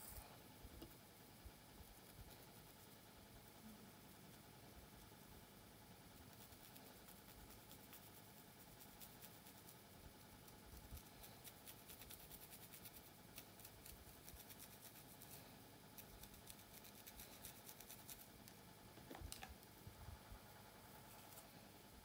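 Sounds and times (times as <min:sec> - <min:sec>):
fingernail scratching scalp: 0:10.8 - 0:15.4, 0:16.0 - 0:18.3.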